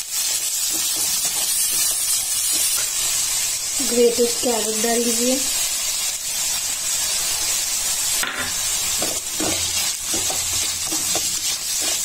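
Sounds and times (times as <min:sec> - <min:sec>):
vegetables sizzling in oil: 0:00.0 - 0:12.0
spatula scraping pan: 0:08.4 - 0:12.0.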